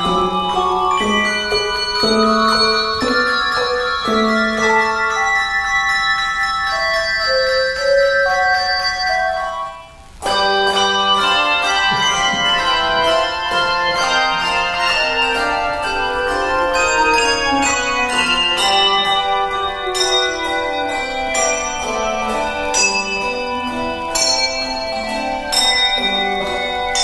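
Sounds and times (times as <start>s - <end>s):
handbell choir ringing: 0.0s - 27.0s.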